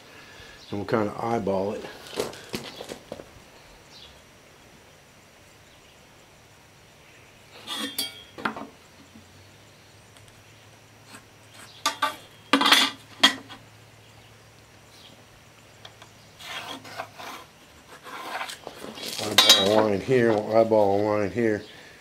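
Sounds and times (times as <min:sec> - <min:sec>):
hand tools clinking and rattling: 0:07.6 - 0:08.6, 0:11.8 - 0:13.6, 0:18.2 - 0:20.6.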